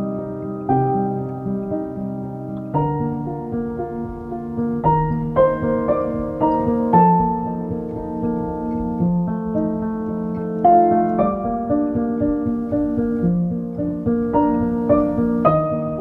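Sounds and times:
piano tune: 0:00.0 - 0:16.0.

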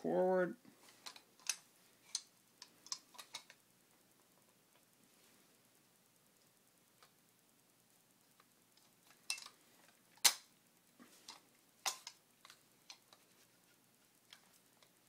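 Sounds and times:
metal clicks and knocks of shotgun: 0:02.9 - 0:03.6, 0:11.3 - 0:13.0.

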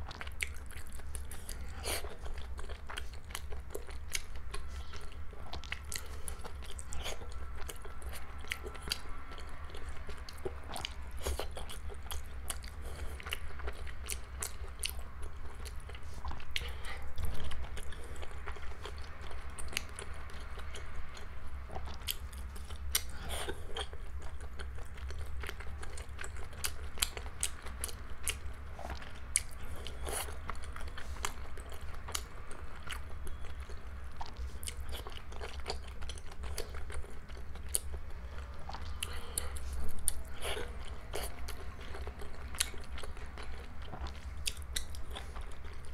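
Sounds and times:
low steady hum: 0:00.0 - 0:45.9
wet chewing mouth sounds: 0:00.0 - 0:45.9.

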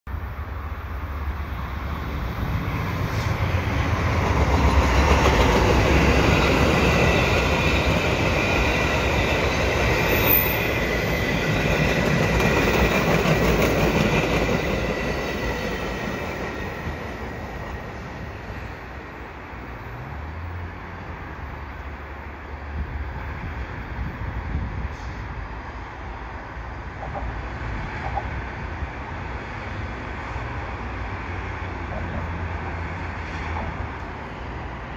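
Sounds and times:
passenger train rumble: 0:00.1 - 0:34.9
high wheel squeal: 0:09.9 - 0:11.5.

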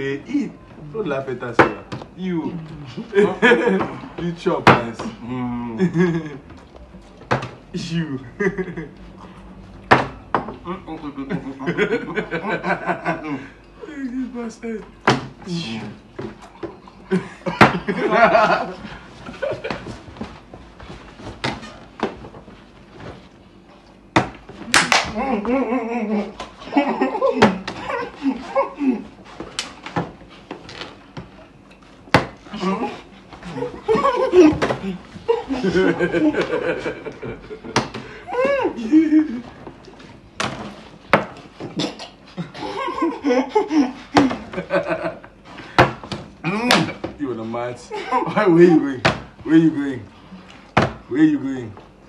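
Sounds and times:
men laughing: 0:02.9 - 0:04.3, 0:05.0 - 0:06.6, 0:08.2 - 0:09.1, 0:11.0 - 0:14.2, 0:16.9 - 0:20.0, 0:25.1 - 0:29.4, 0:32.5 - 0:39.7, 0:42.3 - 0:45.8, 0:47.8 - 0:48.9.

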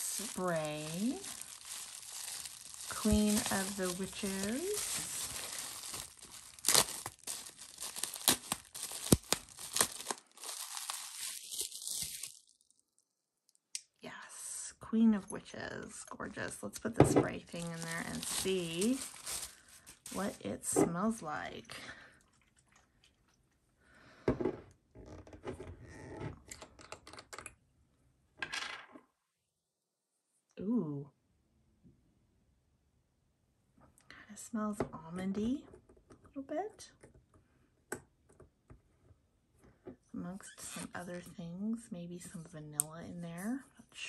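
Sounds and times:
foil packaging clicks and rustles: 0:00.0 - 0:12.6, 0:17.5 - 0:20.4
bubble wrap crinkling: 0:00.0 - 0:13.0, 0:17.3 - 0:20.6.

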